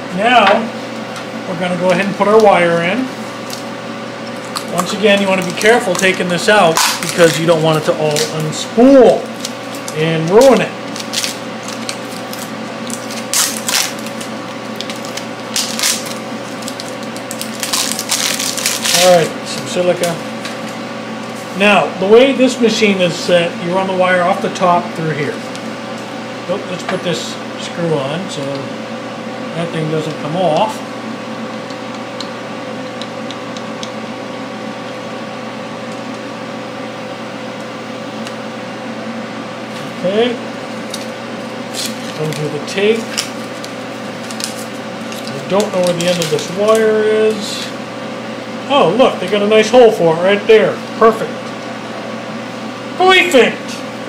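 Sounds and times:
electrical hum: 0:00.0 - 0:54.0
hands crinkling wrapping: 0:10.9 - 0:19.3, 0:41.7 - 0:46.5.

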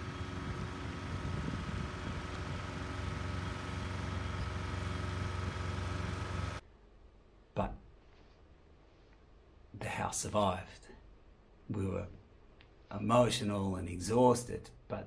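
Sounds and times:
engine running steadily: 0:00.0 - 0:06.6
thin steady whine: 0:00.0 - 0:06.6.

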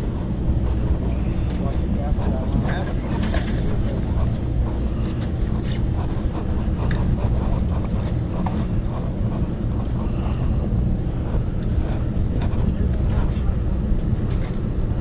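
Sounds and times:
boat engines rumbling: 0:00.0 - 0:15.0.

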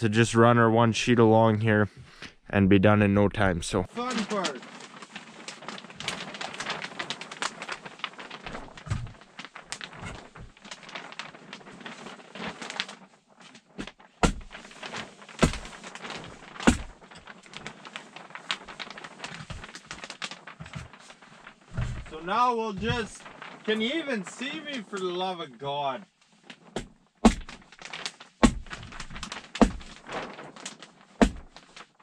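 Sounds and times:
plastic sheet rustling and crinkling: 0:03.7 - 0:32.0
sharp knocks: 0:08.9 - 0:09.2, 0:14.2 - 0:14.6, 0:15.4 - 0:15.8, 0:16.6 - 0:17.0, 0:26.8 - 0:27.6, 0:28.4 - 0:30.0, 0:31.2 - 0:31.6.

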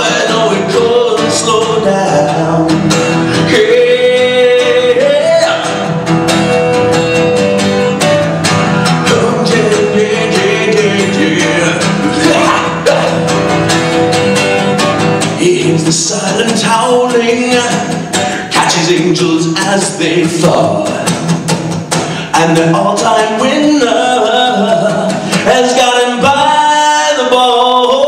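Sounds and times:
man singing: 0:00.0 - 0:06.1, 0:08.8 - 0:13.6, 0:15.2 - 0:21.3, 0:22.1 - 0:28.0
acoustic guitar strumming: 0:00.0 - 0:28.0.

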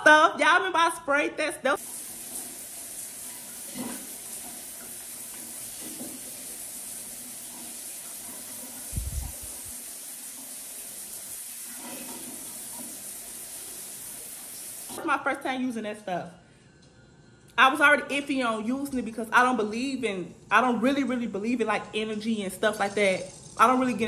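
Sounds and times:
running water hissing: 0:01.8 - 0:15.0, 0:22.4 - 0:24.0.

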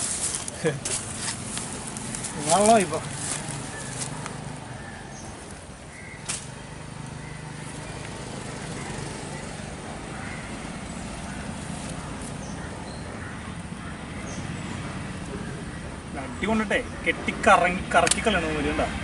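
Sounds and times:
sharp click: 0:18.0 - 0:18.3.

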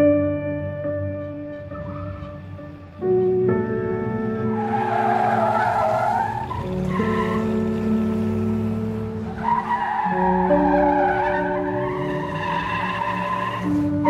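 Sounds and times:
music with sustained chords: 0:00.0 - 0:14.0
tire squeal: 0:01.6 - 0:02.8, 0:04.4 - 0:14.0.

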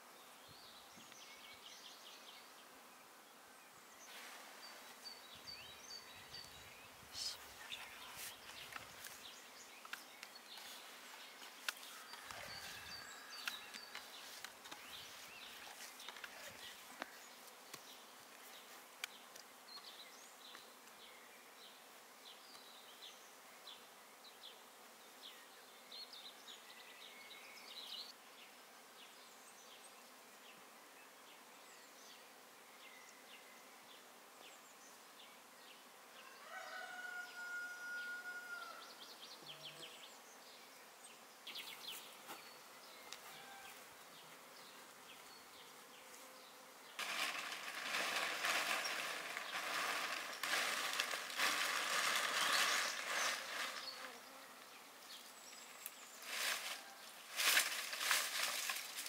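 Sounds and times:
insects buzzing: 0:00.0 - 0:59.0
birds chirping: 0:03.9 - 0:21.3, 0:38.6 - 0:56.6.

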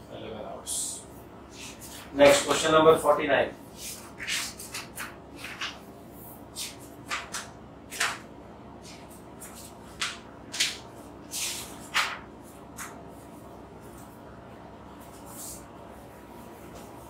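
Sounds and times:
paper sheets rustling: 0:03.7 - 0:05.9, 0:06.5 - 0:08.2, 0:08.8 - 0:14.1.

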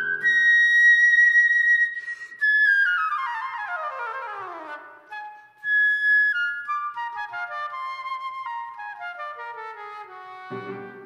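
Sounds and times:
concert flute playing: 0:00.0 - 0:11.0
short breath: 0:01.9 - 0:02.4.

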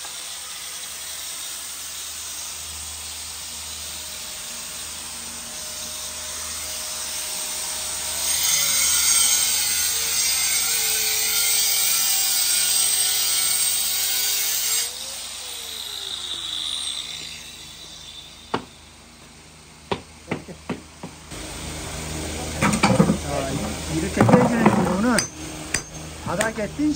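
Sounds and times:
power tool cutting tile: 0:00.0 - 0:18.8, 0:22.6 - 0:25.3.

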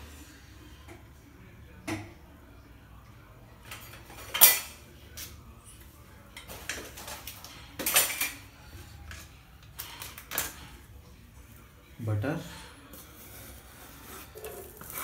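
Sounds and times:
metal kitchenware clinking: 0:03.6 - 0:05.3, 0:06.3 - 0:10.8.

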